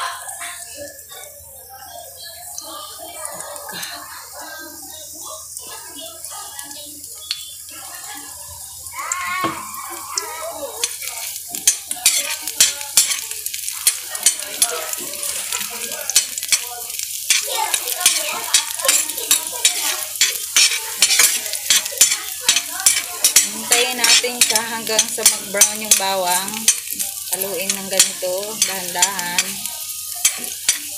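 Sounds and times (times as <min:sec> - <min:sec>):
garlic sizzling in hot oil: 0:00.0 - 0:30.9
metal spoon scraping and clicking: 0:10.8 - 0:14.4, 0:17.3 - 0:26.0, 0:26.6 - 0:26.9, 0:27.6 - 0:30.9.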